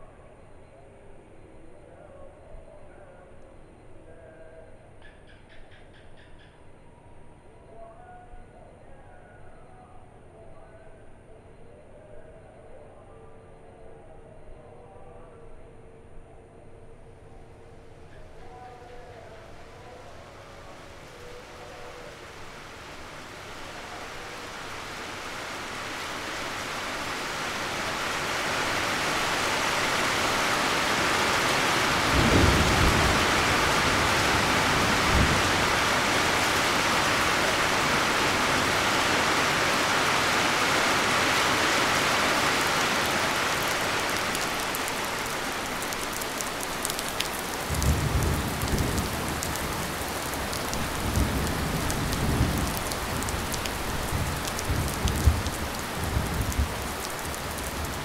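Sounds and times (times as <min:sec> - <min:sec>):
heavy rain downpour: 0:18.0 - 0:58.0
raindrops pattering: 0:19.4 - 0:58.0
low rolls of thunder: 0:30.0 - 0:41.0, 0:43.0 - 0:58.0.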